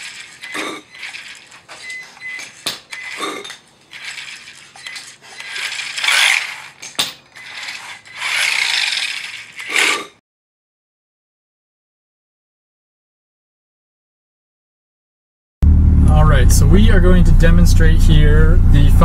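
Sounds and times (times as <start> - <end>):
metal tools clinking: 0.0 - 10.1
ratchet wrench clicking: 2.9 - 10.1.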